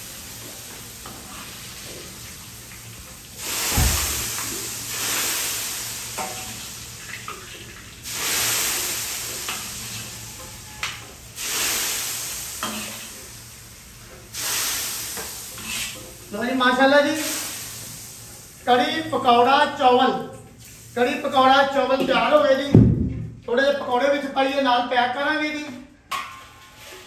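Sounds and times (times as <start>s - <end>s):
food sizzling in hot oil: 0.0s - 21.8s.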